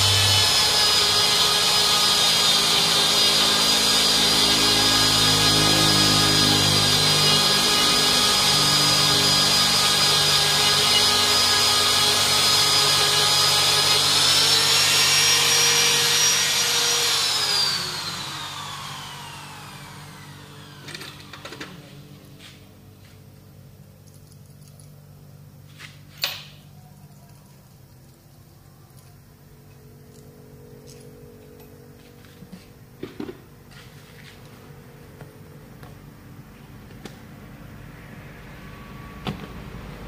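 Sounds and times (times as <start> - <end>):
die grinder whining: 0.0 - 22.0.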